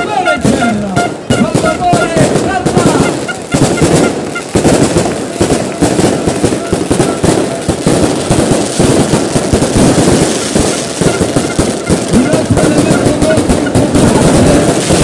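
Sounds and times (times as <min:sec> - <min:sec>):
fireworks bangs and crackling: 0:00.0 - 0:15.0.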